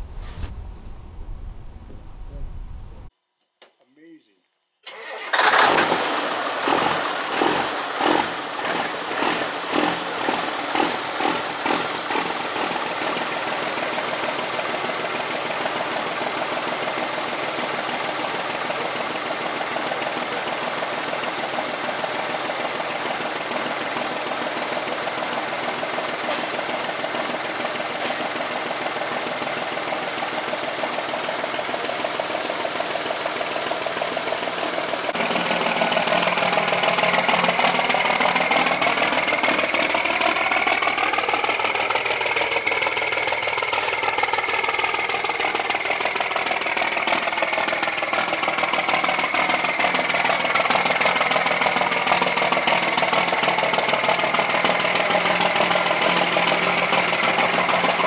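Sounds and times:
diesel engine idling: 4.9s - 58.0s.

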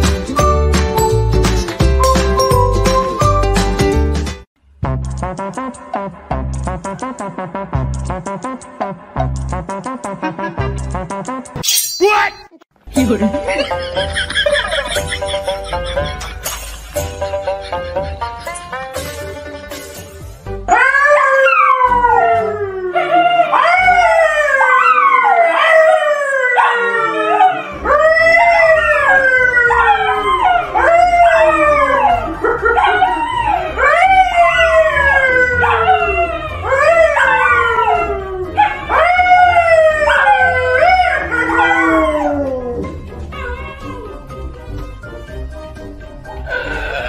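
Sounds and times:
man howling: 20.7s - 44.2s
dogs howling: 20.7s - 44.3s.

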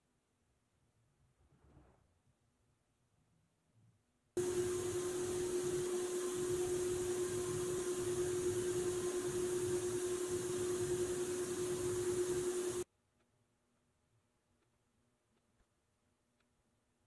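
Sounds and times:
motor hum: 4.4s - 12.8s.

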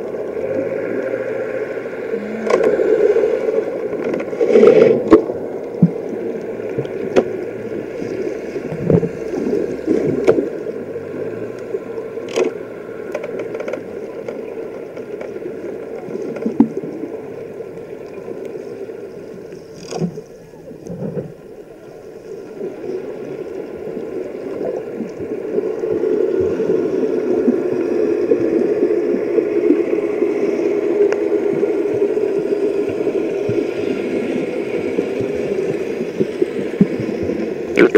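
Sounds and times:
muffled underwater wash: 0.0s - 37.9s.

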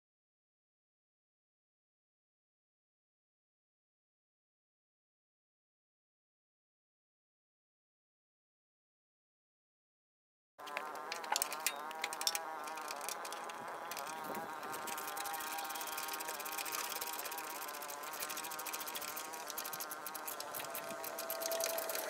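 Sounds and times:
insect buzzing: 10.6s - 22.0s.

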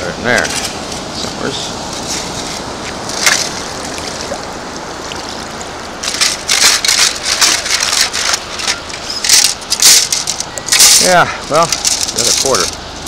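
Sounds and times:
shallow water washing over cobbles: 2.0s - 13.0s
stones rattling in metal scoop: 6.0s - 12.8s.

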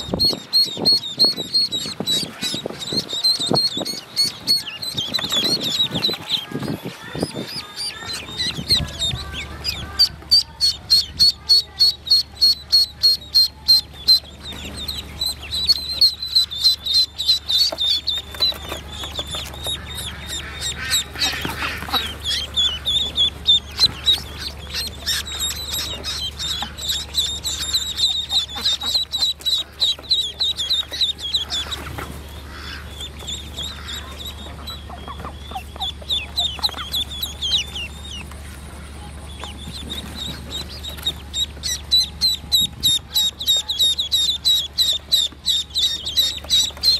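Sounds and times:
ducklings peeping: 0.0s - 46.9s.

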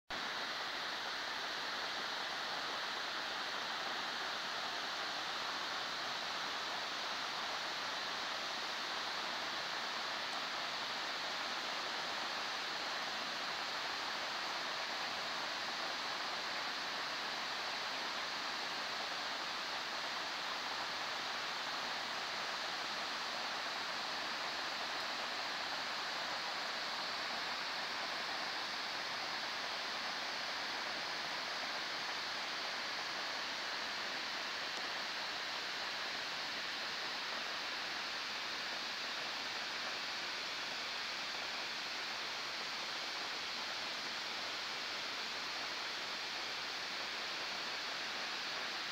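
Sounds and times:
waterfalls rushing: 0.2s - 48.9s.

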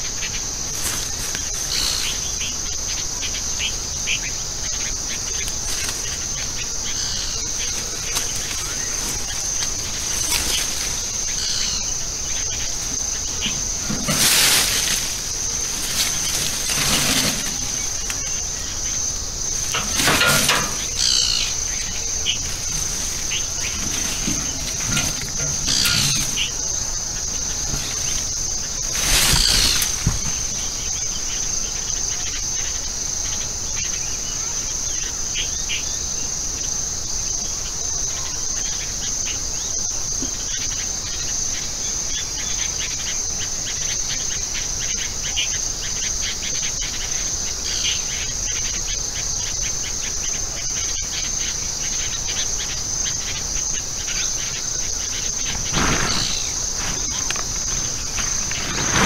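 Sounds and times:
insects droning: 0.0s - 59.0s
bird chirps: 1.5s - 31.5s.

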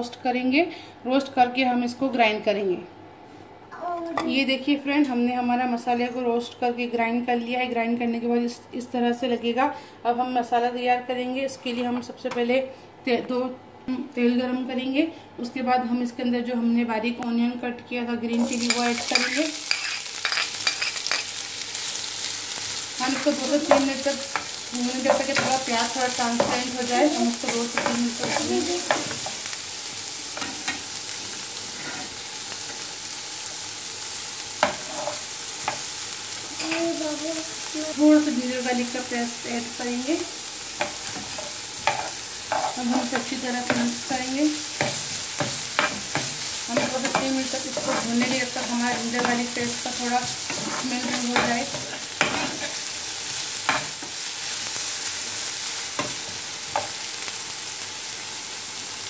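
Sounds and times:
onion sizzling in hot oil: 18.3s - 59.0s
spoon stirring in pan: 18.4s - 22.0s, 23.0s - 29.5s, 40.8s - 54.2s.

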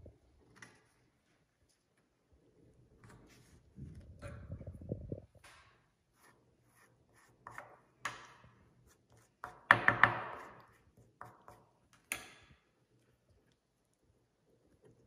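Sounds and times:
spoon rubbing scrape: 6.1s - 7.8s.

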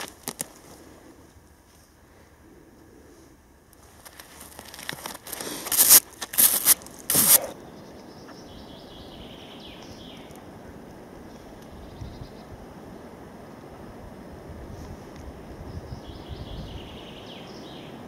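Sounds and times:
faint background noise: 0.0s - 18.0s
gloved hands scraping soil off metal: 3.9s - 7.5s.

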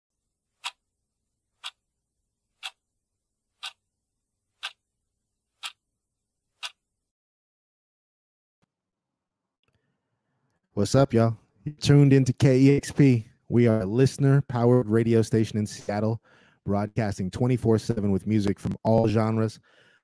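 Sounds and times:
clock ticking: 0.6s - 0.8s, 1.6s - 1.8s, 2.6s - 2.8s, 3.6s - 3.8s, 4.6s - 4.8s, 5.6s - 5.8s.

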